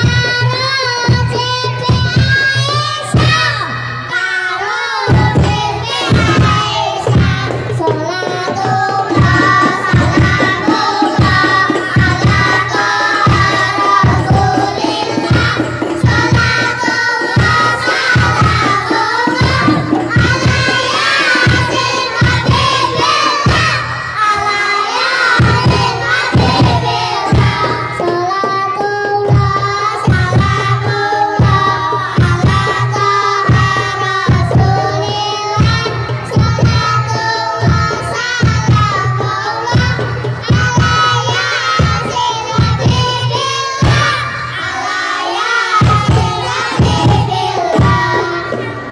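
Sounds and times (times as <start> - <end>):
children singing into microphones: 0.0 - 48.9
frame drums beating: 0.0 - 48.9.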